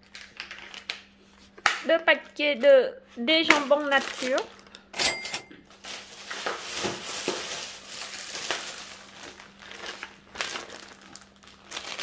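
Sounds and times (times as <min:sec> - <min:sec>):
plastic packets crinkling: 0:00.0 - 0:01.1, 0:03.4 - 0:04.9, 0:05.7 - 0:12.0.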